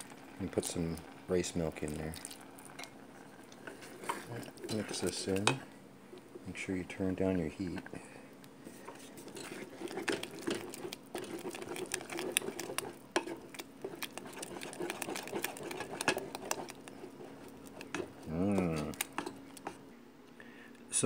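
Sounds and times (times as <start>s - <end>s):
wooden spoon stirring rice in pot: 0.0s - 5.7s, 8.7s - 19.8s
steady low hum: 0.0s - 21.0s
spoon scraping and clicking on pot: 9.0s - 19.8s.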